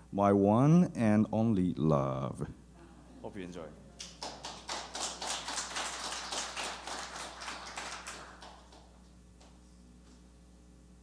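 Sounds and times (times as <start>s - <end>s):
small audience applauding: 4.0s - 9.6s.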